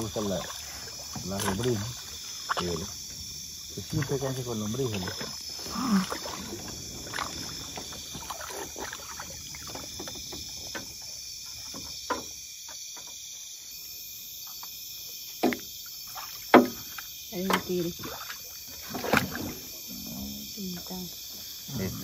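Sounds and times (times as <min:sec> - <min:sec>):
fish splashing: 0:00.0 - 0:11.8, 0:15.7 - 0:19.9
night insects chorus: 0:00.0 - 0:22.0
knocks on boat: 0:11.7 - 0:13.2, 0:16.5 - 0:17.7.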